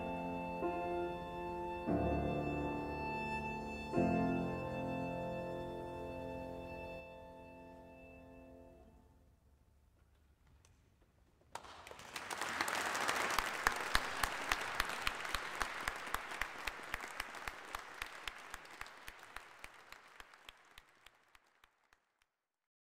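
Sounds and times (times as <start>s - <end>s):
sharp close claps: 10.4s - 22.0s
audience applauding: 11.5s - 22.1s.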